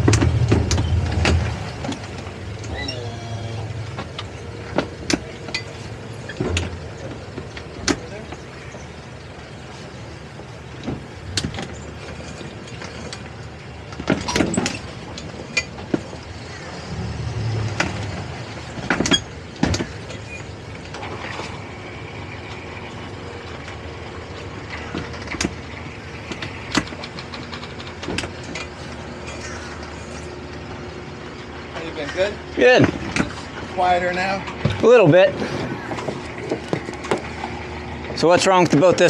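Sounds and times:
outboard engines idling: 0.0s - 39.0s
sharp clicks and knocks: 26.2s - 28.7s.

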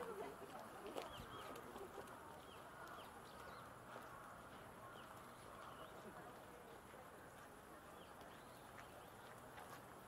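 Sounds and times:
faint murmur of people: 0.0s - 10.0s
small birds chirping: 0.6s - 6.2s, 7.8s - 9.9s.

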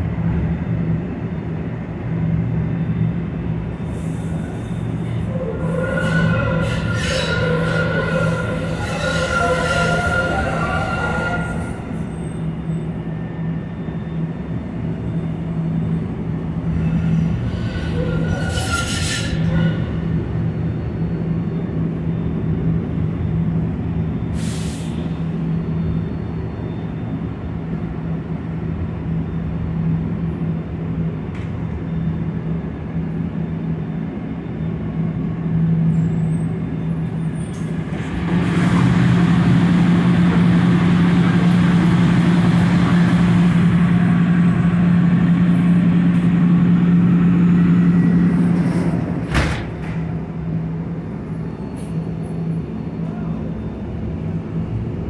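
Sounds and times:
wheel and track rumble: 0.0s - 55.0s
trolley motor hum: 37.9s - 50.2s.

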